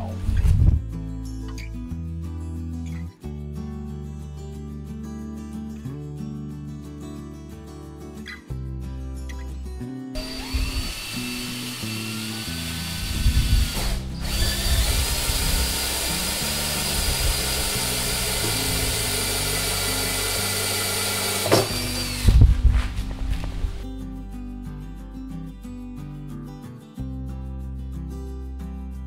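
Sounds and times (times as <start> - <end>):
background music: 0.0 - 29.0
drill motor whining: 10.2 - 22.5.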